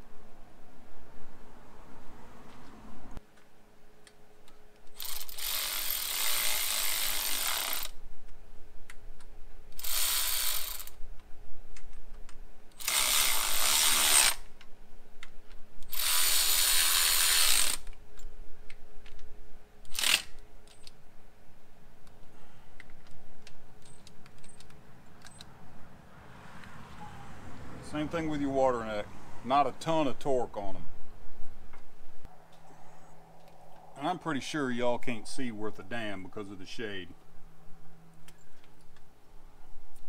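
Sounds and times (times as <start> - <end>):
cordless ratchet running: 5.0 - 8.0, 9.8 - 11.0, 12.8 - 14.4, 15.8 - 17.9, 19.9 - 20.4.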